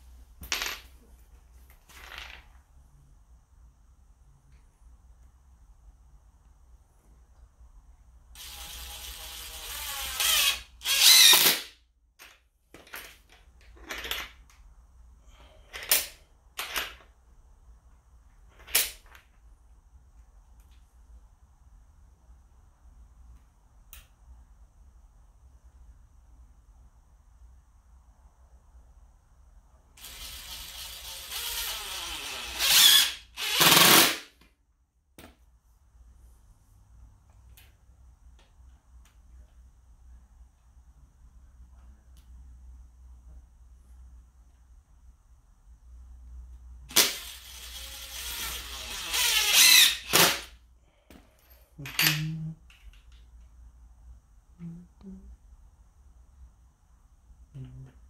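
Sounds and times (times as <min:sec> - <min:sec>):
cordless drill boring into wall: 0:08.4 - 0:11.7, 0:30.0 - 0:34.3, 0:46.9 - 0:50.5.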